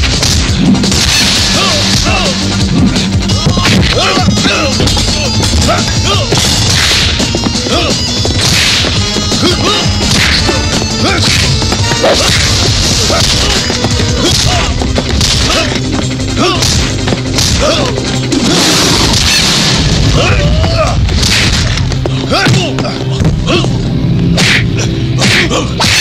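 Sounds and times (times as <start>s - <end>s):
punch and kick whacks: 6.3s - 7.3s, 8.4s - 9.0s, 10.0s - 13.6s, 21.1s - 21.8s, 24.4s - 26.0s.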